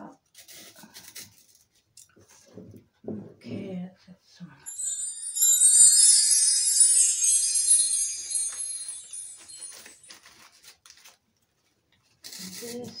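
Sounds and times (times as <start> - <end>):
small bell-like chimes jingling: 4.7 - 10.5.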